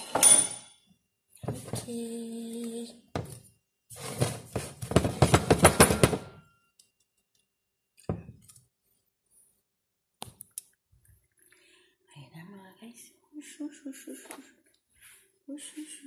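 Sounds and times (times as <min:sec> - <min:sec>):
hands knocking on metal cake pan: 0:04.8 - 0:06.3.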